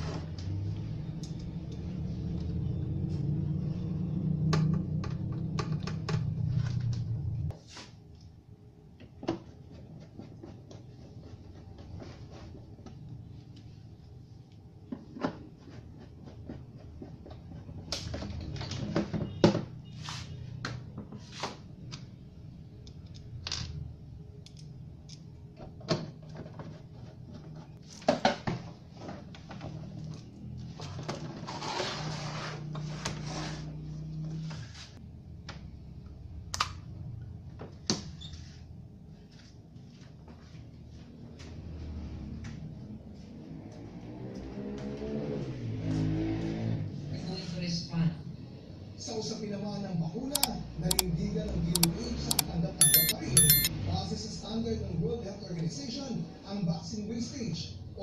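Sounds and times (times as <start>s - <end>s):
screwdriver and plastic clicks: 50.4s - 51.1s, 51.8s - 53.7s.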